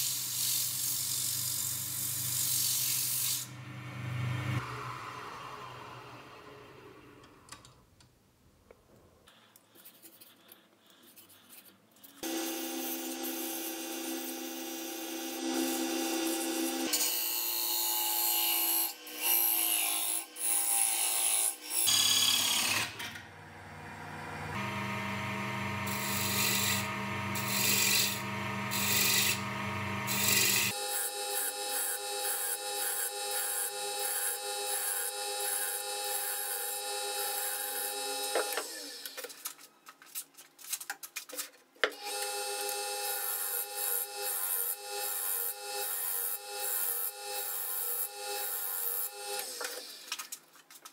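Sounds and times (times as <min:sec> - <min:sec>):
wood lathe motor humming: 0:22.5 - 0:30.8.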